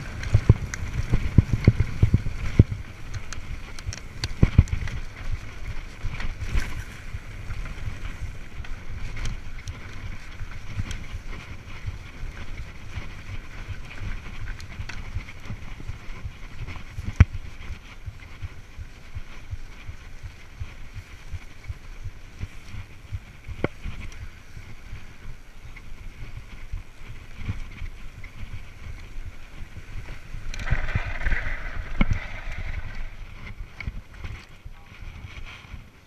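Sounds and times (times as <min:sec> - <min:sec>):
bike rumbling and rattling: 0:00.0 - 0:36.0
wind buffeting microphone: 0:00.0 - 0:36.0
hissing of bike slowing: 0:22.4 - 0:34.6.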